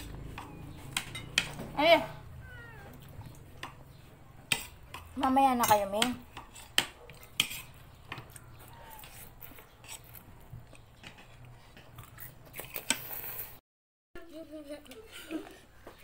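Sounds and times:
cutlery clinking on plates: 0.2s - 1.7s, 3.6s - 10.0s.

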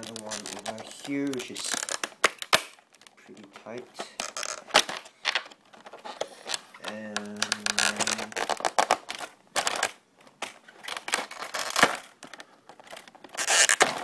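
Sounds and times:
plastic packaging crinkling: 0.0s - 14.0s.

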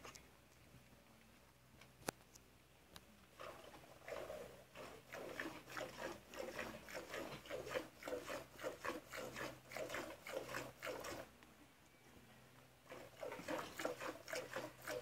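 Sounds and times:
milk squirting into metal pot: 12.9s - 15.0s.

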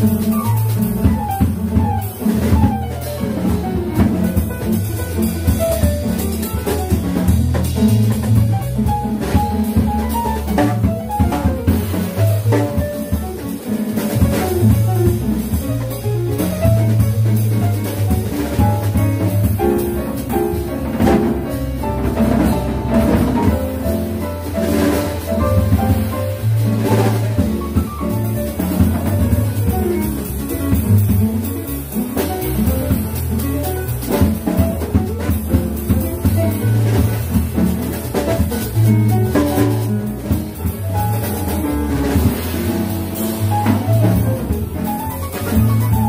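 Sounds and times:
double bass: 0.0s - 46.0s
drum kit: 0.0s - 46.0s
piano: 0.0s - 46.0s.

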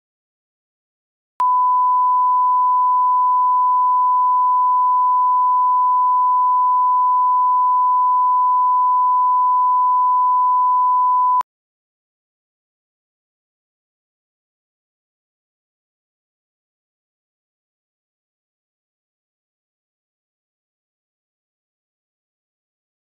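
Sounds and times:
steady test tone beep: 1.4s - 11.4s.

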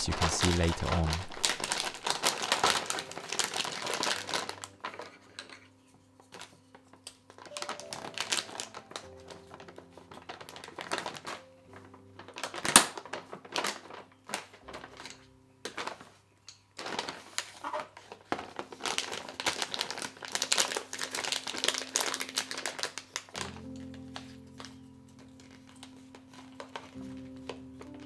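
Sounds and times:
faint background music: 0.0s - 28.0s
plastic bags crinkling: 0.0s - 28.0s
plastic bag clip clicking: 12.2s - 17.2s.

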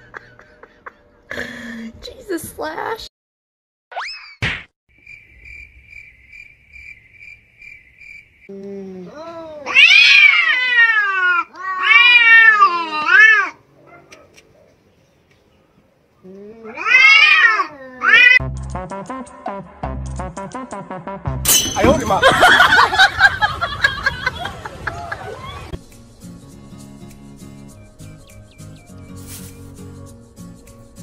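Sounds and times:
cats caterwauling: 9.1s - 14.2s, 16.6s - 18.4s.

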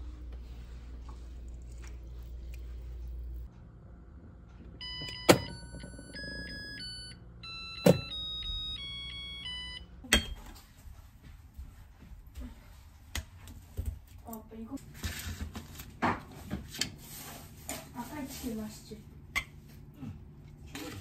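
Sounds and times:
electronic beeping tune: 4.8s - 9.8s.

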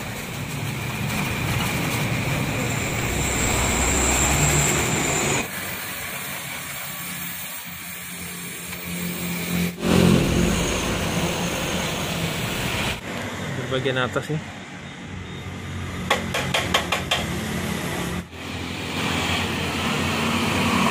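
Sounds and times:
welding torch flame hissing: 0.0s - 13.0s.

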